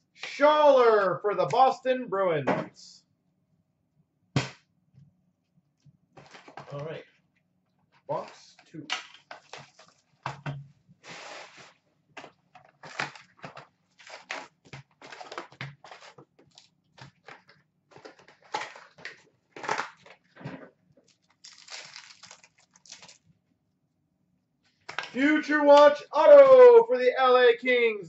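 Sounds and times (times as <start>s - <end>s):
card packs being torn open: 12.8s - 20.2s, 21.1s - 23.2s.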